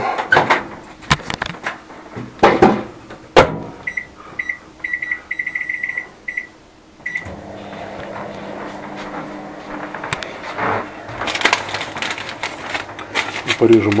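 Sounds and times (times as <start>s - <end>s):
microwave oven humming: 3.0s - 14.0s
microwave keypad beeps: 3.8s - 7.4s.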